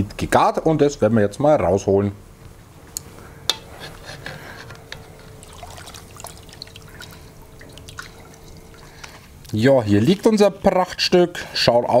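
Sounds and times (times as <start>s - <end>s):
faint steady hum: 0.0s - 12.0s
water sloshing and trickling: 5.1s - 9.6s
small splashes: 5.4s - 9.2s.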